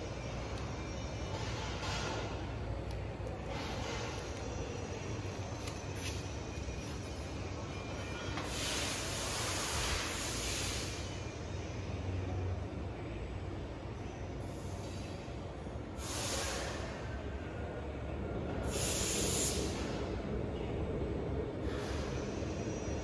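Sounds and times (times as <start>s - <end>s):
hissing bursts: 16.0s - 16.9s, 18.7s - 20.0s.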